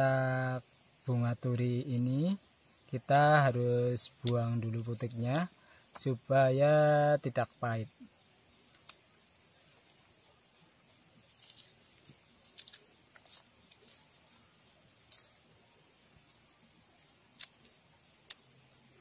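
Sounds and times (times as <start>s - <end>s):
petals crackling and snapping: 4.1s - 6.1s, 8.5s - 9.9s, 11.2s - 15.5s, 16.2s - 18.5s.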